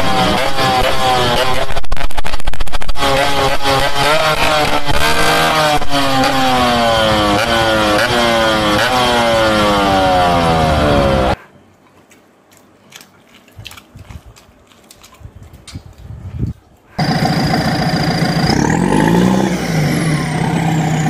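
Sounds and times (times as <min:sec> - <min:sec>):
engine-like revving: 0:00.0 - 0:11.4, 0:17.0 - 0:21.0.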